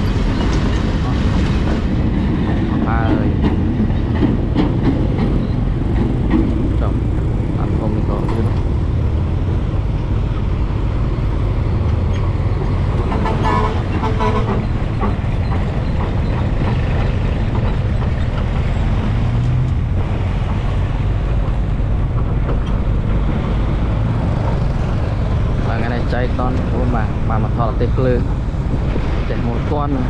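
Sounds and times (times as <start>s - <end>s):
heavy road traffic rumble: 0.0s - 30.0s
vehicle horn: 13.1s - 14.7s.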